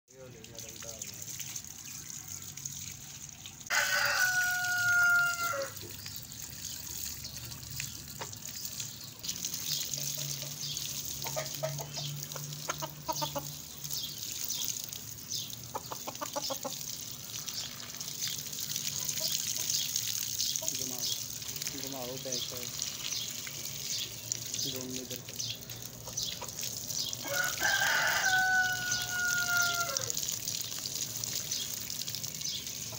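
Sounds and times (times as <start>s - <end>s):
water pouring onto concrete: 0.1s - 32.9s
rooster crowing: 3.7s - 5.8s, 27.2s - 30.2s.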